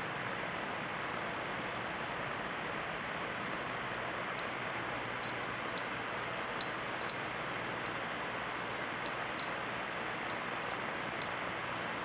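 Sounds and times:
glass wind chime tinkling: 0:04.4 - 0:07.3, 0:07.9 - 0:08.1, 0:09.1 - 0:11.6.

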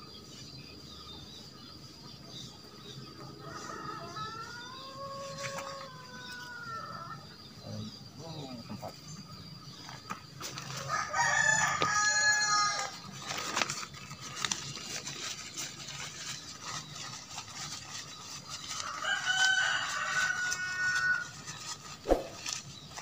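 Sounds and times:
rooster crowing: 0:03.4 - 0:07.2, 0:10.8 - 0:13.0, 0:18.8 - 0:21.2
tent clicks and rustles: 0:12.8 - 0:23.0.

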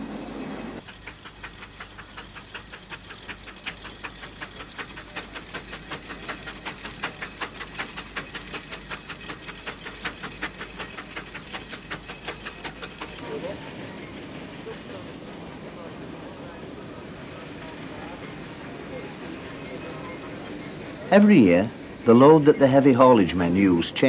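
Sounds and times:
steam engine exhaust chuffing: 0:00.0 - 0:24.0.

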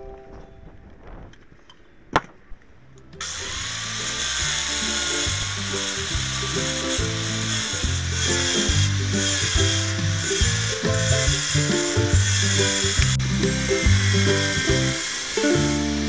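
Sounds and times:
angle grinder cutting stone: 0:03.2 - 0:16.0
background music: 0:03.2 - 0:16.0.

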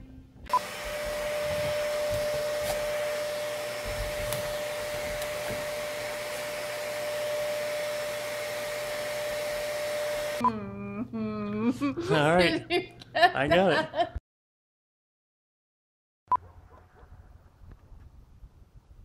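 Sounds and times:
vacuum cleaner whining: 0:00.0 - 0:10.4.

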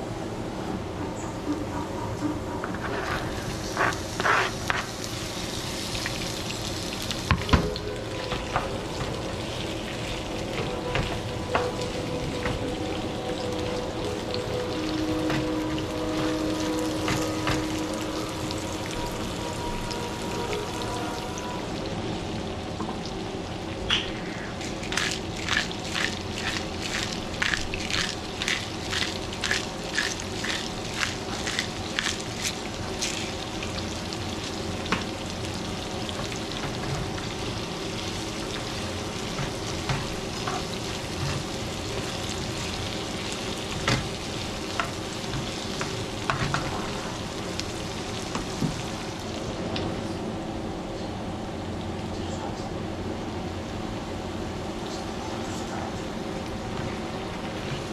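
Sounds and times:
onions sizzling in frying pan: 0:03.0 - 0:23.8, 0:24.6 - 0:49.8
pepper mill grinding: 0:24.6 - 0:33.4.

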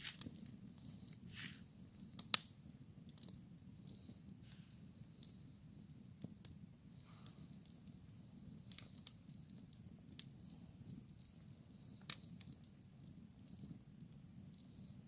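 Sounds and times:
campfire crackling: 0:00.0 - 0:15.0
fire pops and snaps: 0:00.0 - 0:15.0.

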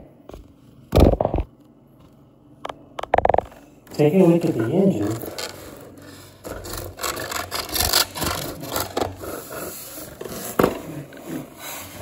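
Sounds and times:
cardboard and plastic rubbing: 0:04.4 - 0:12.0.

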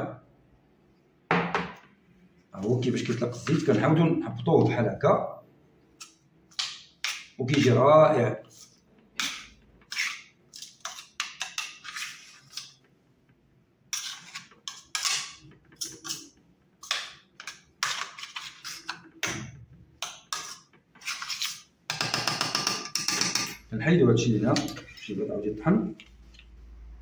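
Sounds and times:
metal spoon scraping a steel bowl: 0:08.5 - 0:12.8, 0:13.9 - 0:19.1, 0:20.0 - 0:23.7, 0:24.4 - 0:25.3.

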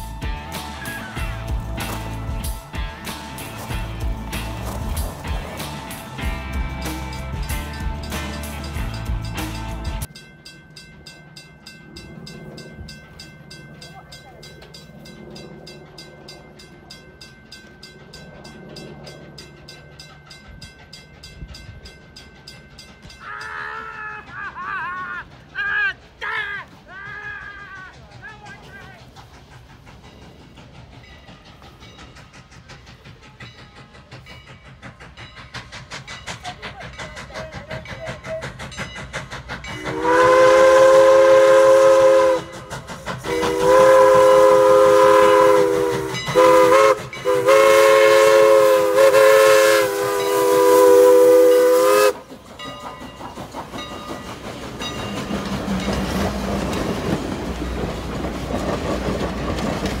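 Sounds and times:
steam locomotive rhythmic beat: 0:00.0 - 1:00.0
train rolling past rumble: 0:00.0 - 1:00.0
wheels clicking on rail joints: 0:00.0 - 1:00.0
steam whistle blasts: 0:39.8 - 0:52.2.

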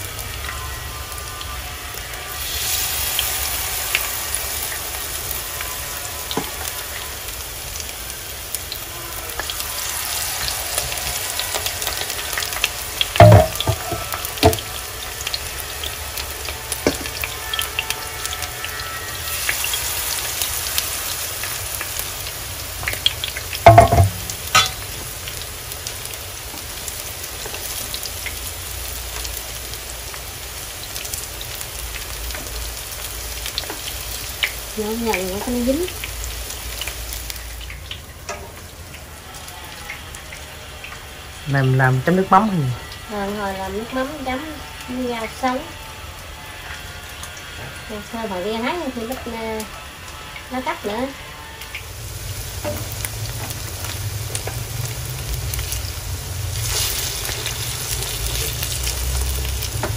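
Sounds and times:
fritters sizzling in hot oil: 0:00.0 - 0:59.9
loud sharp knocks: 0:23.7 - 0:24.7.

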